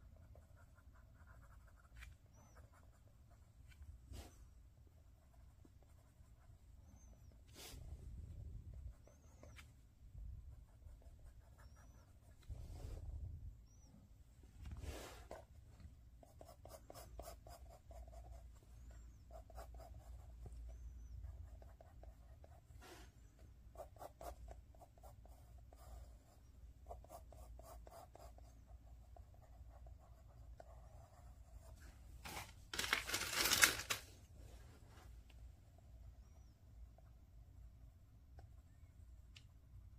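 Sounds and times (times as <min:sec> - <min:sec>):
pencil scratching on paper: 0:00.0 - 0:04.4, 0:05.1 - 0:07.8, 0:08.7 - 0:09.7, 0:10.5 - 0:12.5, 0:16.2 - 0:31.9.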